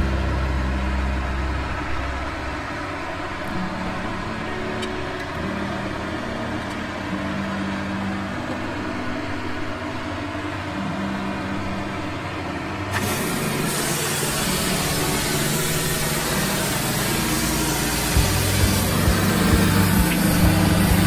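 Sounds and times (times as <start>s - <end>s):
sawmill engine idling: 12.4s - 21.0s.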